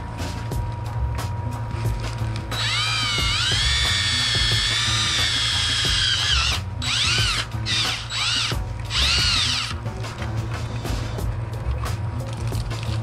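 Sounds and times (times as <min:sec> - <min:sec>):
cordless drill whirring: 0:02.5 - 0:09.8.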